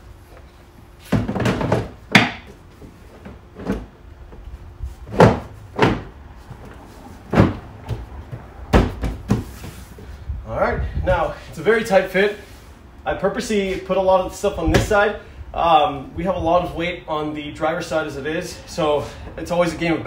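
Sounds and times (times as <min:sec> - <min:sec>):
hollow plastic clunks and knocks: 0:07.3 - 0:09.5.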